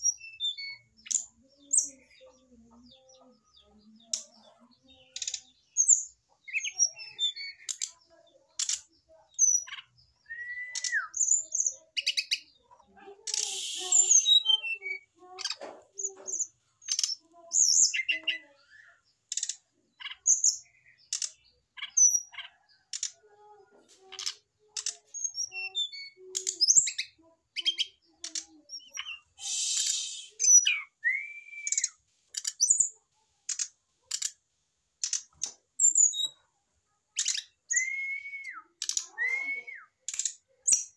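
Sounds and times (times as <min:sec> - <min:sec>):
bird chirps and ticks: 0:00.0 - 0:40.9
bird harsh rasps: 0:13.2 - 0:15.6, 0:28.8 - 0:31.0
bird whistled notes: 0:29.4 - 0:32.0, 0:37.7 - 0:40.0.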